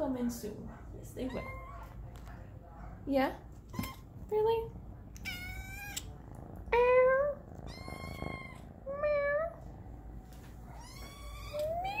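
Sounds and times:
cat meowing: 0:01.2 - 0:02.0, 0:05.2 - 0:06.1, 0:06.8 - 0:09.6, 0:10.7 - 0:12.0.

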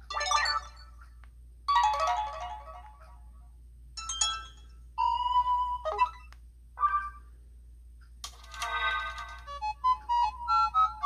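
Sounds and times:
phone ringtone melodies: 0:00.1 - 0:01.0.

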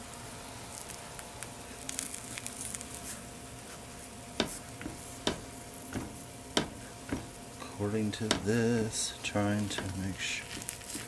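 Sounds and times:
batter sizzling in frying pan: 0:08.3 - 0:11.0.

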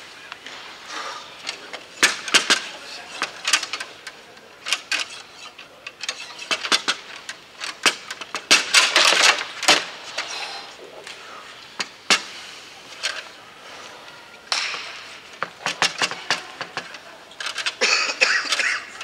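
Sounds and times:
foosball clacking: 0:01.5 - 0:09.9.

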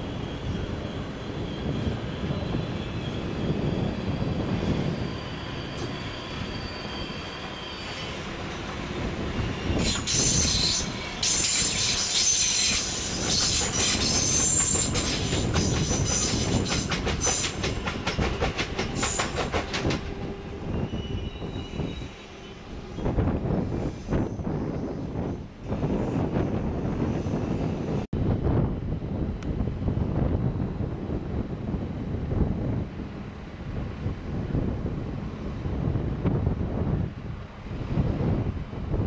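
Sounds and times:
train wheels squealing: 0:00.0 - 0:28.0
train rumble: 0:00.0 - 0:39.0.

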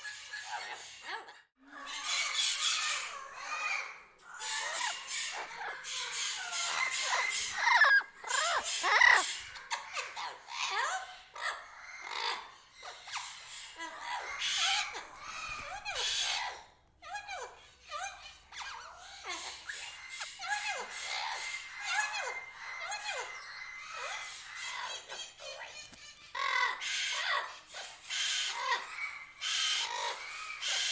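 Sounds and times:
cockatoo chattering calls: 0:01.9 - 0:30.9.

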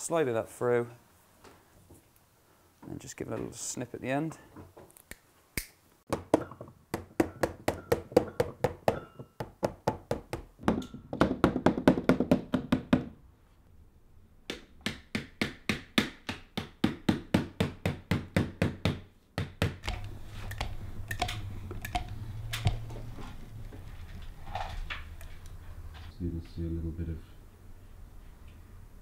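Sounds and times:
small hammer tapping: 0:14.5 - 0:22.8.

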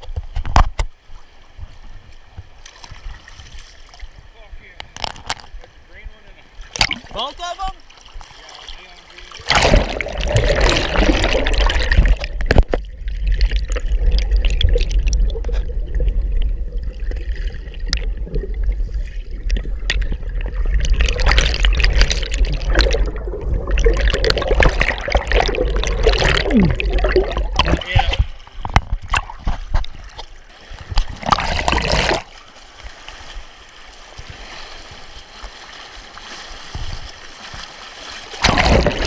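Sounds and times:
water splashing: 0:06.4 - 0:39.0
muffled underwater current rush: 0:08.0 - 0:39.0
water bubbling: 0:09.3 - 0:32.4, 0:38.3 - 0:39.0.

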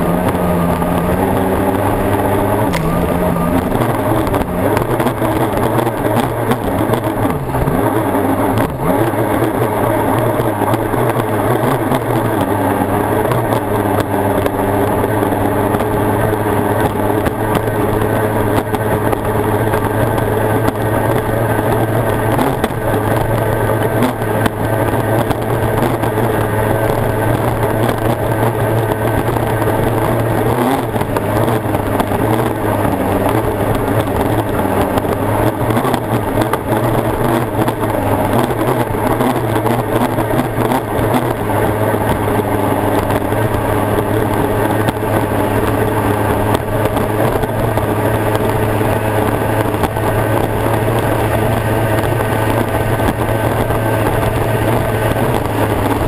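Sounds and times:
two-stroke outboard engine racing: 0:00.0 - 0:56.0.

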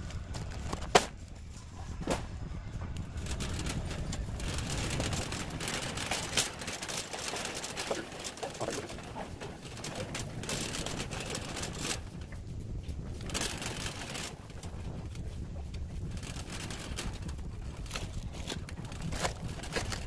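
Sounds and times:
shopping cart rolling rumble: 0:00.0 - 0:20.0
plastic bag crinkling: 0:03.1 - 0:12.2, 0:16.0 - 0:20.0.

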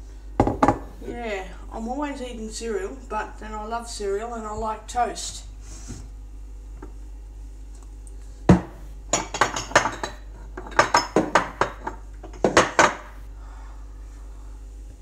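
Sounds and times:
crockery and cutlery clattering: 0:09.1 - 0:13.1.

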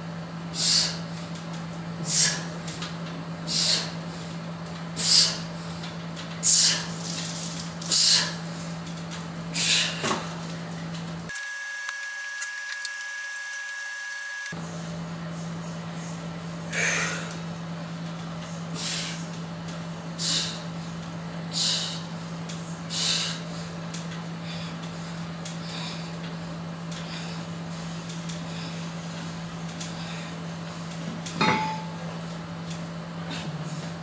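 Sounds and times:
steady low hum: 0:00.0 - 0:11.3, 0:14.4 - 0:34.0.

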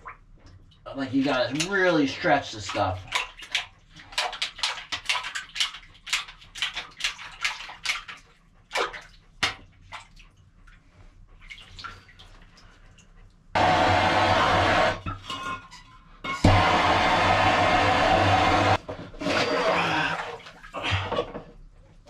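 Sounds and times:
water splashing in a cistern: 0:00.0 - 0:13.1, 0:18.7 - 0:21.4.

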